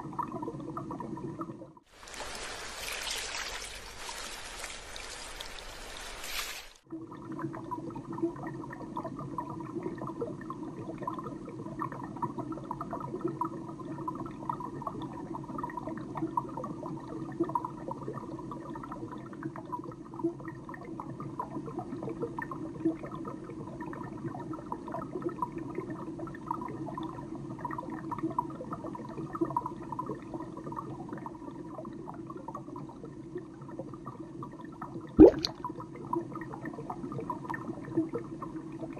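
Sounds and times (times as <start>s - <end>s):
underwater bubbling: 0.0s - 6.2s, 6.9s - 38.9s
water pouring: 1.9s - 6.8s, 35.2s - 35.6s.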